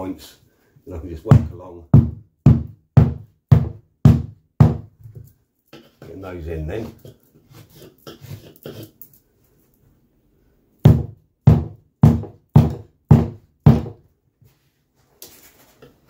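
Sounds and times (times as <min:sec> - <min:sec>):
mallet striking wooden block: 0:01.3 - 0:04.9, 0:10.9 - 0:14.0.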